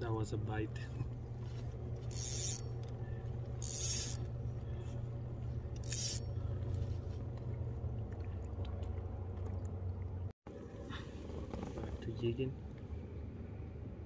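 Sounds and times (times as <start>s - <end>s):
electric boat motor humming: 0.9s - 10.2s.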